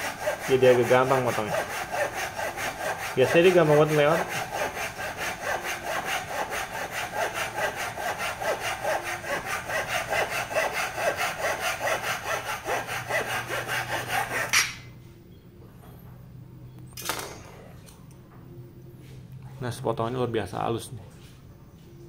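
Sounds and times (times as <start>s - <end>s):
hand saw rasping through wood: 0.0s - 14.9s.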